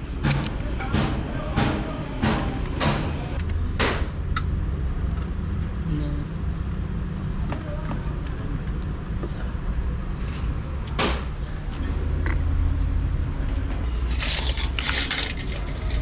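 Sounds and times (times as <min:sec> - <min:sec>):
sharp knock: 0:11.0 - 0:11.3
clicking and rattling: 0:13.8 - 0:16.0.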